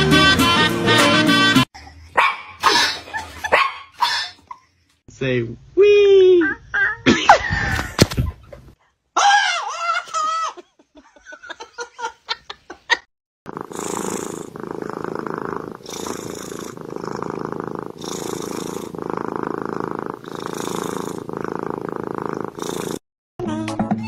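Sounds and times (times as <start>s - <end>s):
kitten purring: 13.5s - 23.0s.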